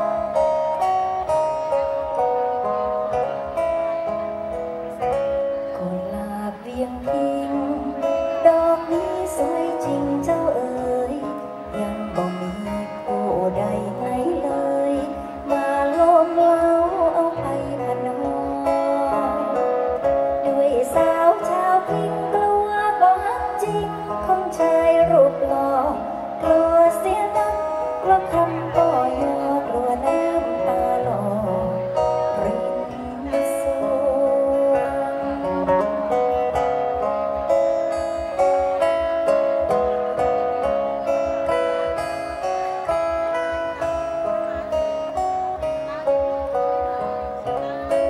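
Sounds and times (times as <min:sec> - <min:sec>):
amplified guitar accompaniment: 0:00.0 - 0:48.0
woman singing into a microphone: 0:00.0 - 0:48.0.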